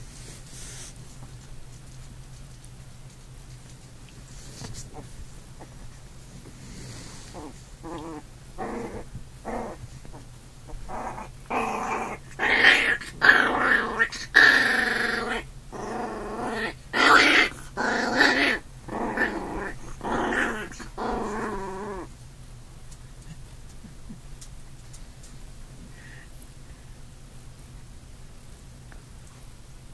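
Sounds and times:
puppy growling: 4.5s - 22.1s.

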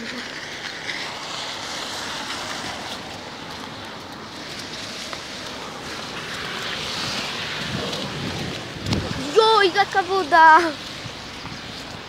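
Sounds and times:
car tyres on wet street: 0.0s - 12.0s
rain hissing: 0.0s - 12.0s.

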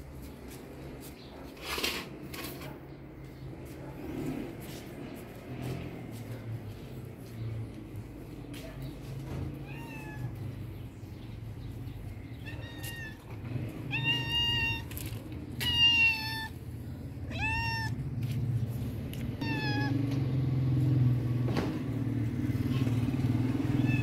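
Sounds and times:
cat meowing: 9.5s - 10.4s, 12.4s - 14.9s, 15.6s - 16.6s, 17.2s - 18.0s, 19.4s - 20.2s, 23.8s - 24.0s.

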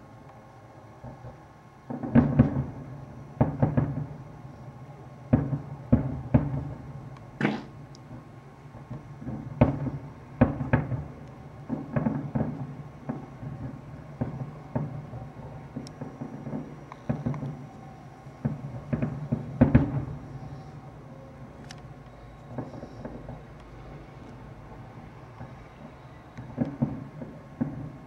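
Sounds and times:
distant firework booms: 1.9s - 4.2s, 5.3s - 20.9s, 22.5s - 23.5s, 25.4s - 28.0s.

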